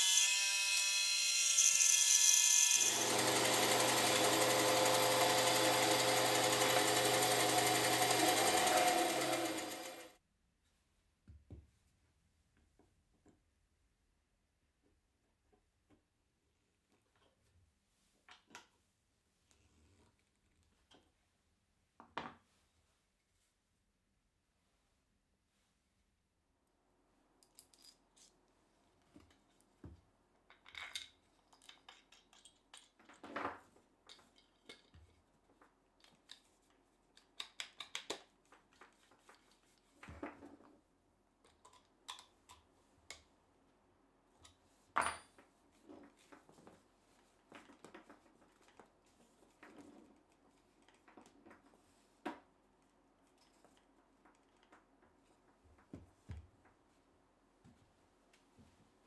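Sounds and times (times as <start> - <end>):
drill clamped into wooden block: 0.0 - 10.1
metal tools clicking and clinking: 30.5 - 33.2.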